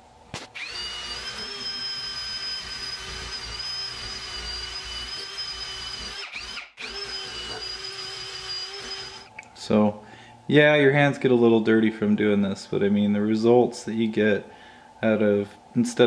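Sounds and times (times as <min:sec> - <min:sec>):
rotary tool wire brush whine: 0:00.6 - 0:09.3.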